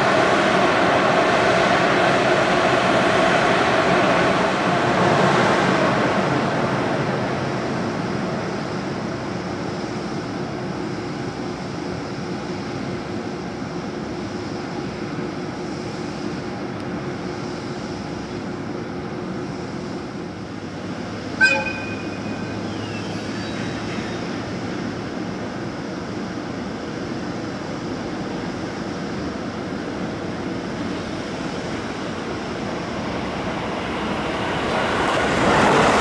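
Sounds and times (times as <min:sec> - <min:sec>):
locomotive hum and rumble: 0:00.0 - 0:36.0
short high-pitched squeal: 0:21.4 - 0:24.8.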